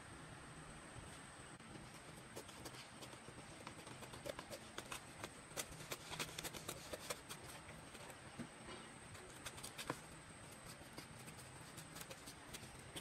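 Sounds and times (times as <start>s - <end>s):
scissors snipping paper: 2.3s - 8.2s, 9.2s - 13.0s.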